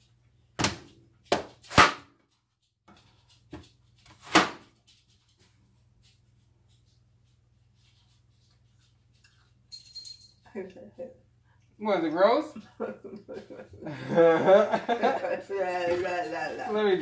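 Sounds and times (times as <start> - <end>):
knife chopping on cutting board: 4.1 - 4.7.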